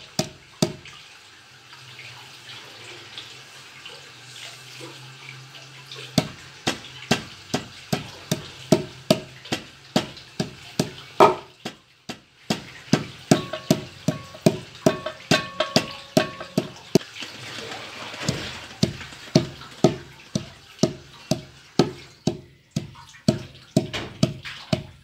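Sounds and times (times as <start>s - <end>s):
pounder knocking on wooden board: 0.1s - 0.8s, 6.2s - 17.0s, 18.2s - 25.0s.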